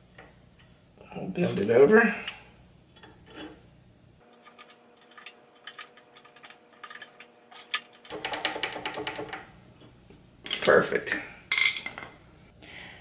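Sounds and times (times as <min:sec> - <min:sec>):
pliers clicking and scraping metal: 0:04.2 - 0:08.1
clattering rattle: 0:04.2 - 0:09.5.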